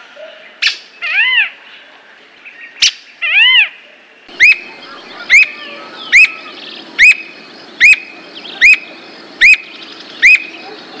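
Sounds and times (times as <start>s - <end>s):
bird whistled notes: 4.3s - 10.8s.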